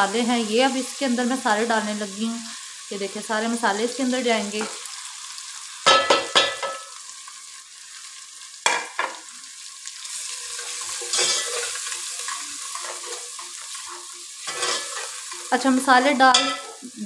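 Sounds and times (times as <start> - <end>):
onions sizzling in oil: 0.0 - 17.0
ladle scraping pot: 11.0 - 15.4.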